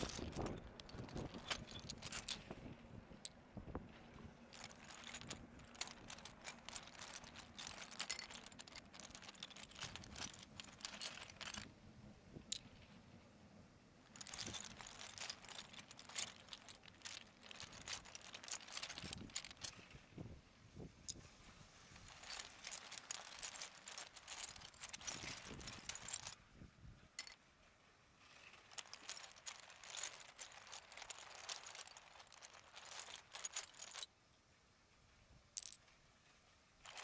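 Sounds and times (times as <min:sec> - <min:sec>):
toy train wheels clicking on track: 0:22.0 - 0:26.3.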